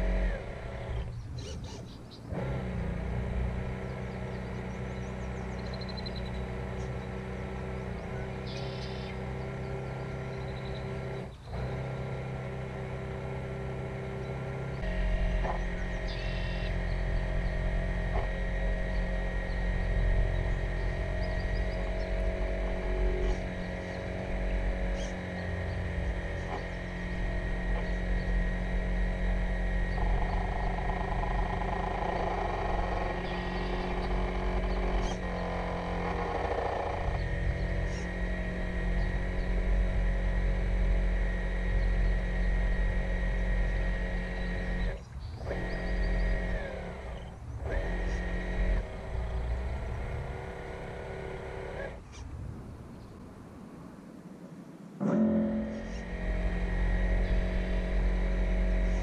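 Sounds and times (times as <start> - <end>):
electric motor humming: 0.0 - 52.2, 55.0 - 59.0.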